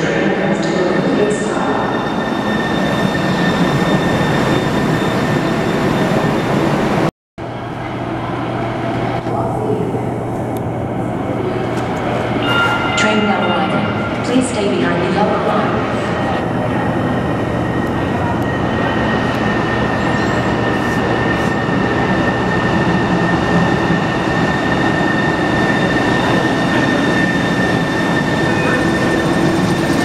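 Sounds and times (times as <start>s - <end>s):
train rumbling on rails: 0.0s - 30.0s
high whine: 1.5s - 30.0s.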